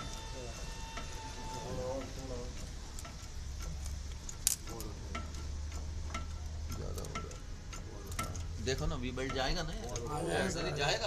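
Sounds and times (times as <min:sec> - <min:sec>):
steady low hum: 0:00.0 - 0:11.0
light clicks and taps: 0:02.0 - 0:10.1.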